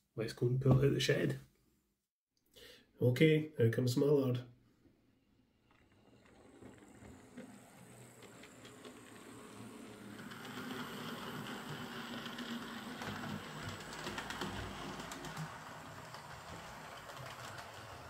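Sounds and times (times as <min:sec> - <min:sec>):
wheels clicking on rails: 0:05.6 - 0:18.0
model train motor humming: 0:05.7 - 0:18.0.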